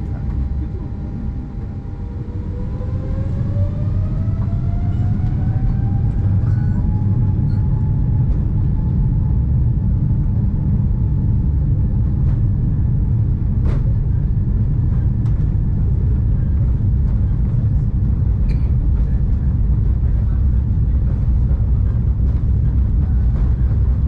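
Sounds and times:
jet engine rumble: 0.0s - 24.0s
jet engine whine: 0.0s - 24.0s.

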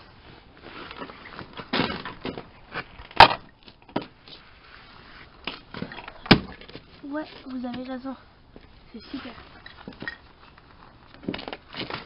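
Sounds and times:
crunching and crackling: 9.2s - 12.0s.

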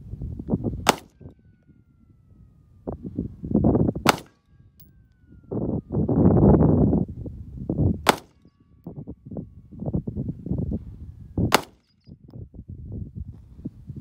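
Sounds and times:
pistol shots: 0.8s - 1.2s, 4.0s - 4.4s, 8.0s - 8.5s, 11.5s - 11.8s.

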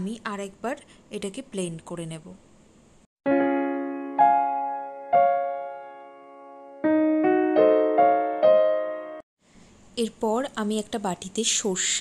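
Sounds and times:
piano music: 3.2s - 9.3s.

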